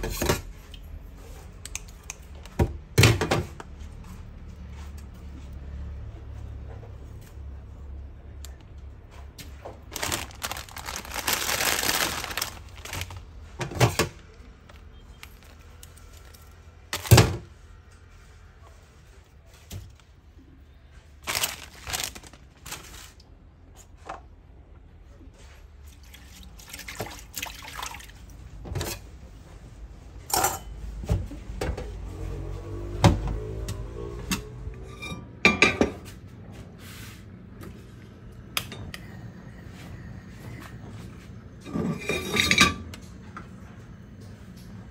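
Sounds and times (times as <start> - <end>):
water splashing in a bowl: 25.9 - 28.4.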